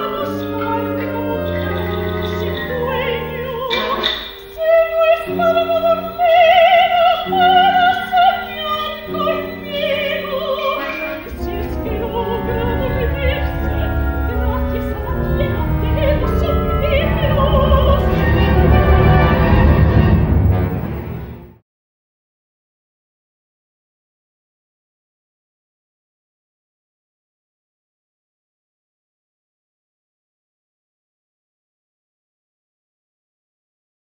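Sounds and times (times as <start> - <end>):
operatic woman singing: 0.0 - 20.0
orchestra playing: 0.0 - 21.6.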